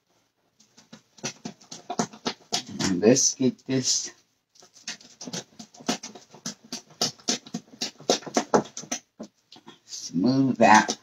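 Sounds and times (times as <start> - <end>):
whisk beating batter in glass bowl: 4.6 - 9.3.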